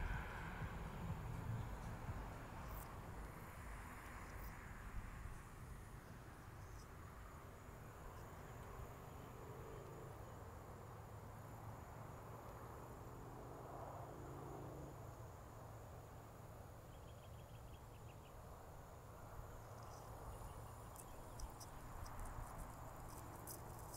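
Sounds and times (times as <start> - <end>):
road traffic rumble: 0.0 - 23.9
insect trilling: 19.6 - 23.9.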